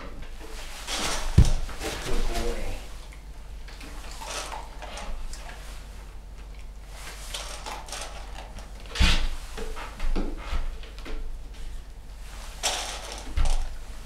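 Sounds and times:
heavy thump: 1.2s - 1.8s.

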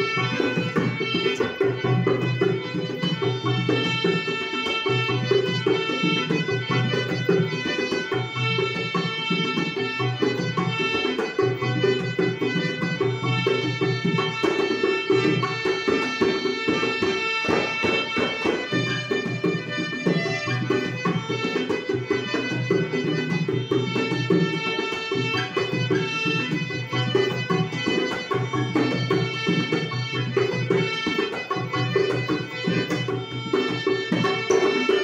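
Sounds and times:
hand drum rhythm: 0.0s - 35.0s
harmonium chords: 0.0s - 35.0s.

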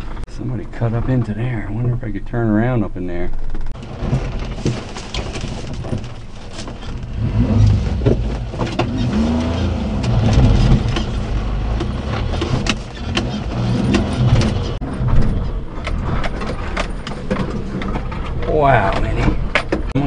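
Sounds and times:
truck engine revving under load: 7.0s - 18.4s
knocks and clicks: 7.9s - 20.0s.

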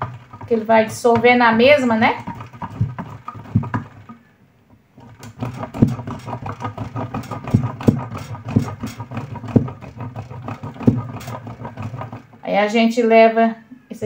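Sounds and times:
soap grated on metal grater: 0.0s - 4.2s, 5.0s - 12.8s.

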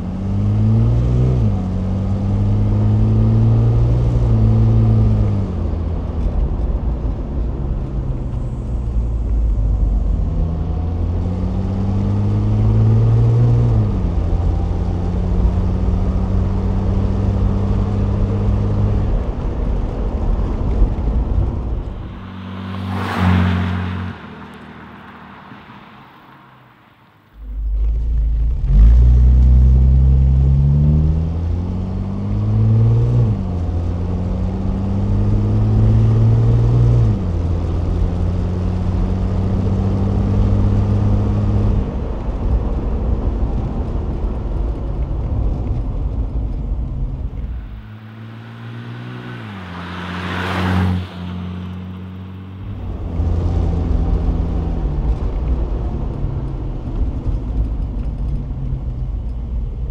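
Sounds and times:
car engine accelerating through gears: 0.0s - 26.5s, 27.3s - 59.9s
rush of noise: 19.3s - 28.2s, 43.4s - 55.8s.

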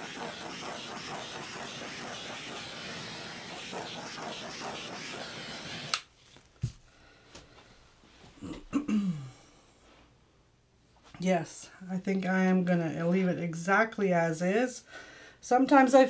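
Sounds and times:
torch flame hissing: 0.0s - 6.1s
torch switch click: 5.8s - 6.1s.

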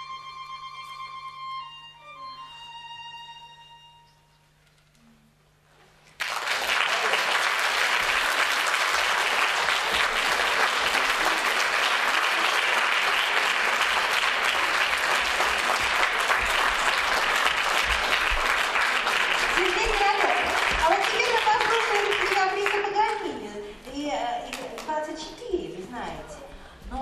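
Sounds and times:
audience applauding: 6.0s - 23.4s.

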